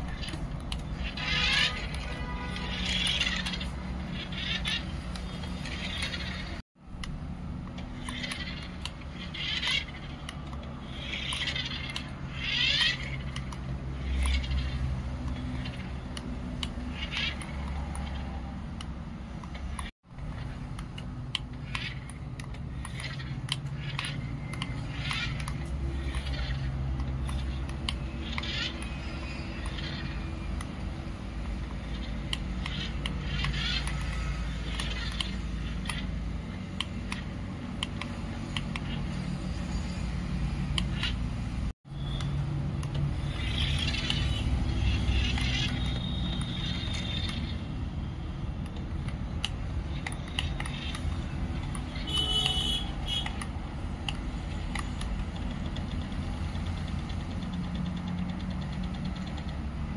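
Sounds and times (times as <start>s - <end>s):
toy wheels crunching on grit: 0.0s - 6.6s
toy electric motor humming: 0.0s - 59.9s.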